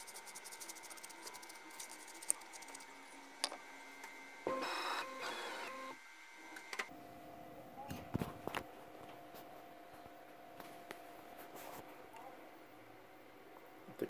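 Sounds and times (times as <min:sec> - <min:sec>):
light scratching: 0:00.0 - 0:02.9
faint electrical whine: 0:00.0 - 0:14.0
stepper motors whining: 0:04.0 - 0:06.9.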